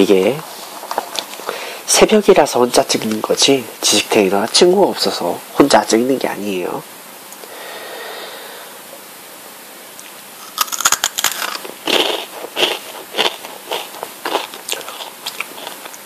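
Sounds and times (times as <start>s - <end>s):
potato sticks crunching: 10.4s - 16.0s.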